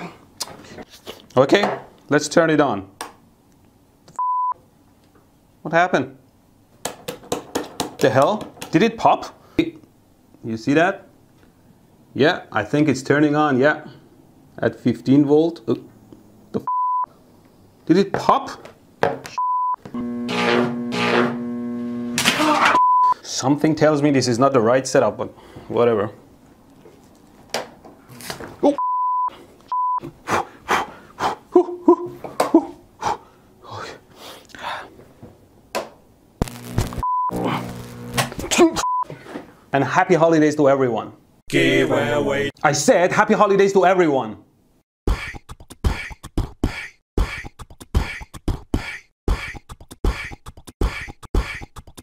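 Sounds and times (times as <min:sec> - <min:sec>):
censor bleep: 0:04.2 - 0:04.6, 0:16.7 - 0:17.1, 0:19.4 - 0:20.1, 0:22.7 - 0:23.2, 0:28.8 - 0:30.0, 0:36.5 - 0:37.6, 0:38.8 - 0:39.1
man grunting and yelping: 0:30.8 - 0:34.0, 0:45.1 - 0:52.0
percussive music beat: 0:45.1 - 0:52.0.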